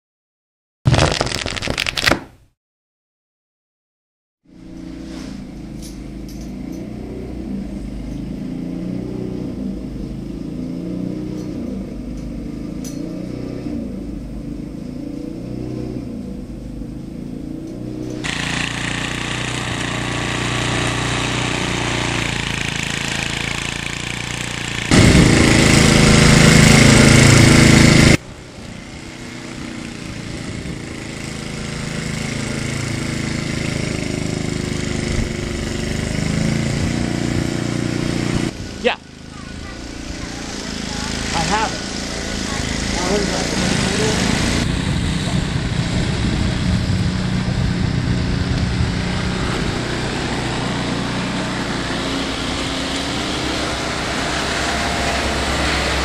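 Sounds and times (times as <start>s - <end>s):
snowblower engine running: 17.8s - 56.0s.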